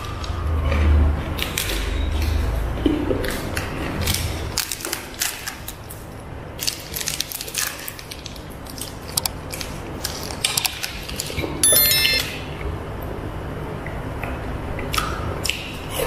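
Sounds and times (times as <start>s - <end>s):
short bright chime: 11.6s - 12.4s.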